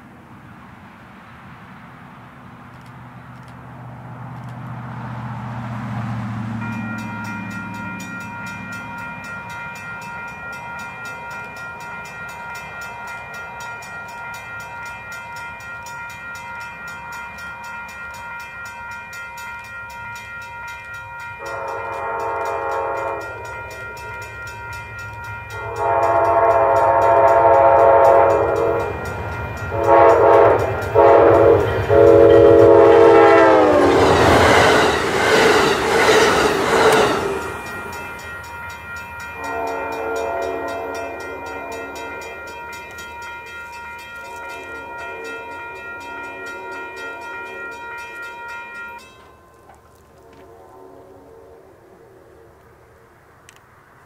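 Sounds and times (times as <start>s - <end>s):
rush of passing train: 0.0s - 54.0s
locomotive horn blasts: 21.4s - 24.2s, 25.5s - 34.9s, 39.3s - 43.0s, 44.0s - 48.5s, 50.1s - 51.8s.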